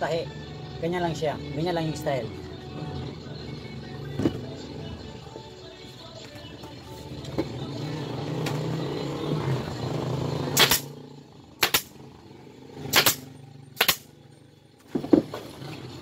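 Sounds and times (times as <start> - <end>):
staple gun firing: 10.6 - 10.9, 11.6 - 11.9, 12.9 - 13.2, 13.8 - 14.1.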